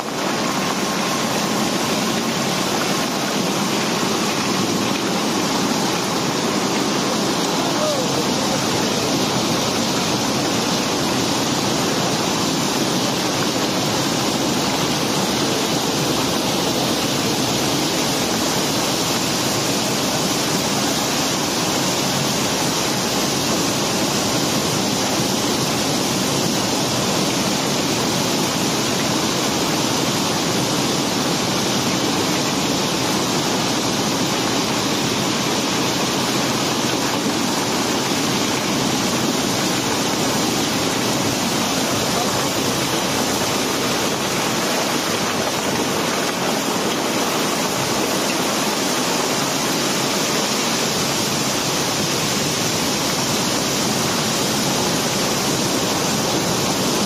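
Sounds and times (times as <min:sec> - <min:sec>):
gravel and cobblestones pouring: 0:00.0 - 0:23.2, 0:35.4 - 0:55.8.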